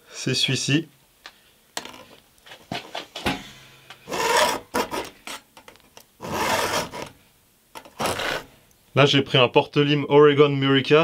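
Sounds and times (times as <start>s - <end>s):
file strokes on saw chain: 4.1s - 5.1s, 6.2s - 7.1s, 8.0s - 8.5s
file scrapes and clicks: 4.1s - 7.2s, 7.8s - 8.5s.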